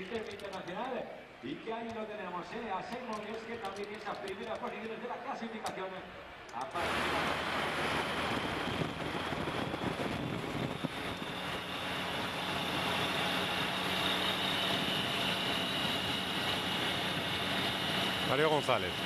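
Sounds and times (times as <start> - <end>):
high steady whine: 6.7 - 19.0.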